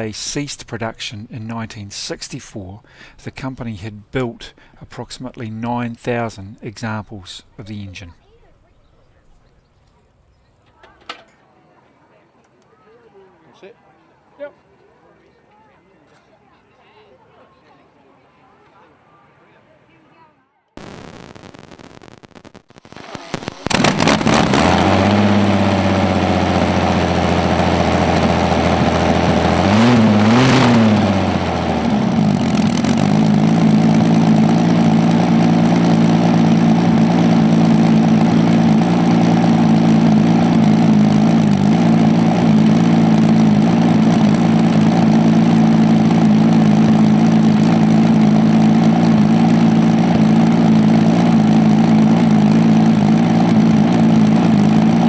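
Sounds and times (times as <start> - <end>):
engine idling and revving: 22.9 - 55.0
engine backfire bangs: 23.7 - 25.9.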